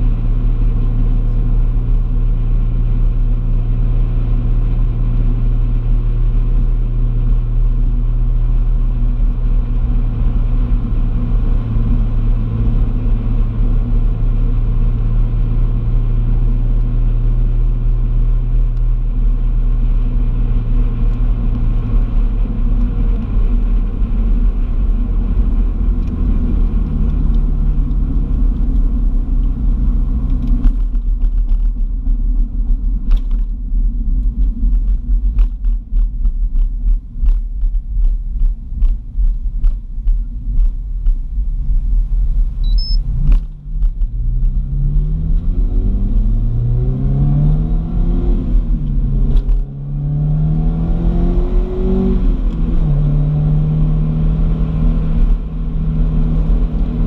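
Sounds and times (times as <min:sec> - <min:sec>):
car engine humming: 0:00.0 - 0:57.0.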